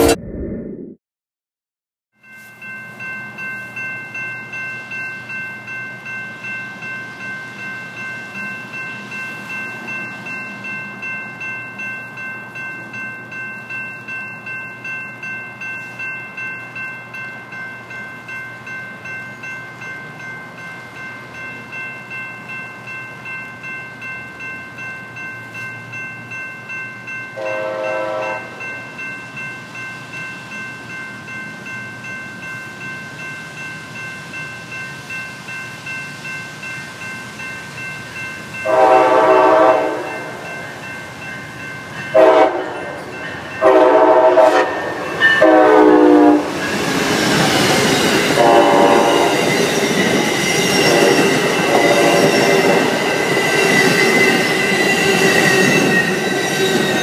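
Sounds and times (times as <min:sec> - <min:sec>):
train rumbling past: 0:00.0 - 0:00.6, 0:24.8 - 0:57.0
crossing warning bell ringing: 0:02.2 - 0:57.0
train horn blasts: 0:27.4 - 0:28.6, 0:38.6 - 0:40.2, 0:42.1 - 0:43.0, 0:43.6 - 0:46.6, 0:48.4 - 0:49.4, 0:51.0 - 0:52.4.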